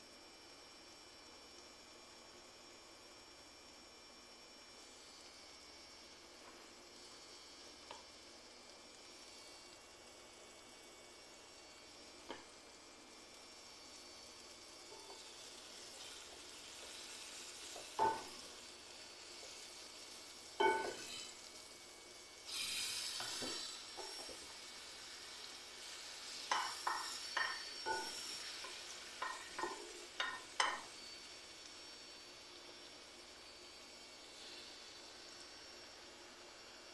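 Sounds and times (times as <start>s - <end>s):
food sizzling in oil: 0.0s - 36.9s
spatula knocking and scraping pan: 17.8s - 18.4s, 20.6s - 21.2s, 26.5s - 30.9s.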